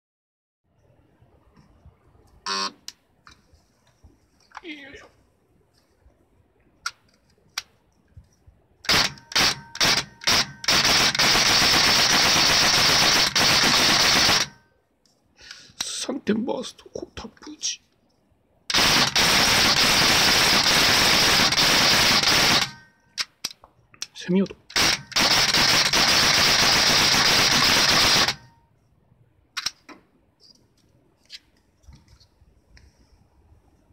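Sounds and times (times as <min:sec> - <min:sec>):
airsoft rifle firing: 0:08.8 - 0:14.6, 0:18.7 - 0:23.4, 0:24.7 - 0:28.6
rifle handling clicks: 0:29.6 - 0:29.9.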